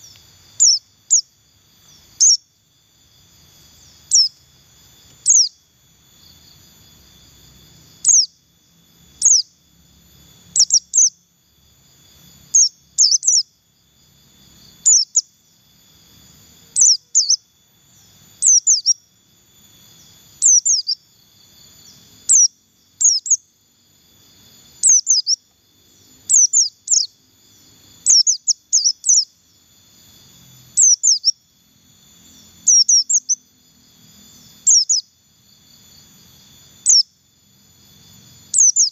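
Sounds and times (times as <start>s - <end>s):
bird giving high sharp calls: 0.0s - 2.5s, 5.2s - 5.6s, 9.2s - 9.5s, 12.5s - 13.5s, 16.8s - 17.4s, 24.8s - 25.4s, 26.3s - 27.1s, 28.0s - 29.3s, 38.5s - 38.9s.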